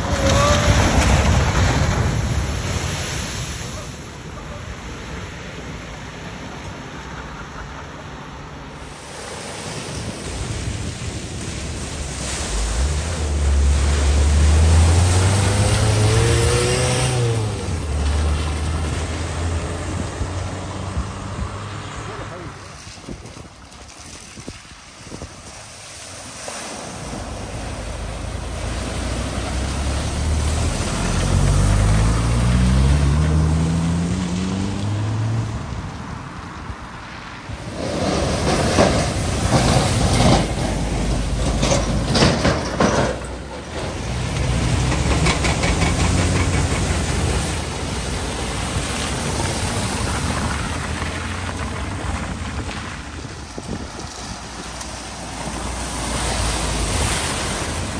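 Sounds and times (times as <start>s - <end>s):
water splashing: 0.0s - 7.4s, 8.6s - 57.9s
car engine accelerating: 12.5s - 22.3s, 27.9s - 35.7s.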